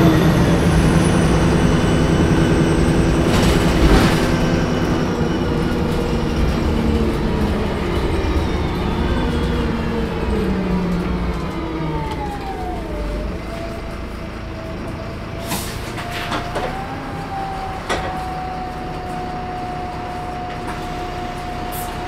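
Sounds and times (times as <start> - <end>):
turbocharger whine: 0.0 - 15.3
diesel bus engine running: 0.0 - 22.0.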